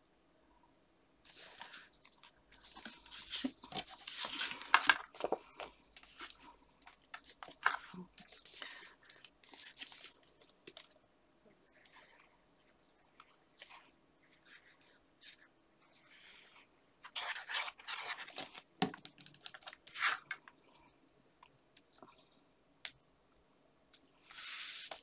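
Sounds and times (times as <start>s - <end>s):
cardstock rustling and scraping: 1.3s - 8.8s.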